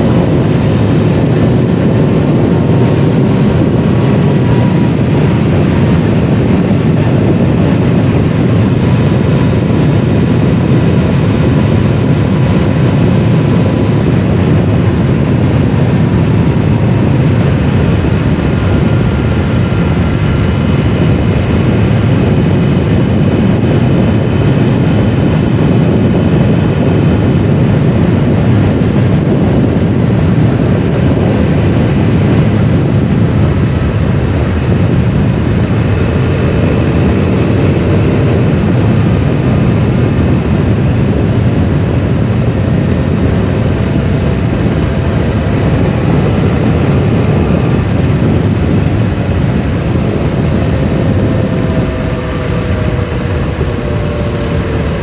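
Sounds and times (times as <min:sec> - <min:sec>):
motorcycle engine: 0:00.0 - 0:55.0
wind rushing over microphone: 0:00.0 - 0:55.0.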